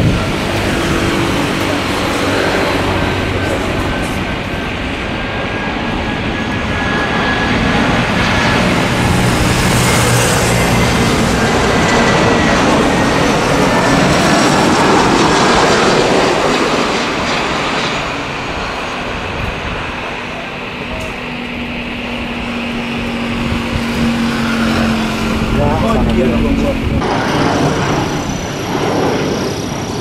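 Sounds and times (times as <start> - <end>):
jet engine rumble and whine: 0.0 - 30.0.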